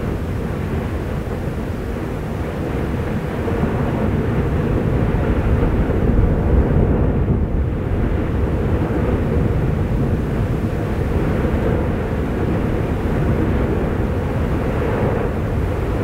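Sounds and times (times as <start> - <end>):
deep volcanic rumble: 0.0 - 16.0.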